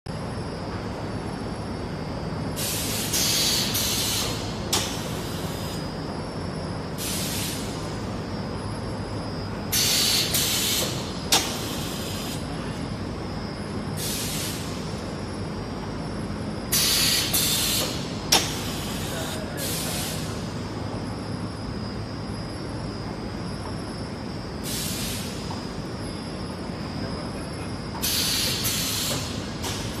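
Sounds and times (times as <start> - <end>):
steady machine hum: 0.1 - 30.0.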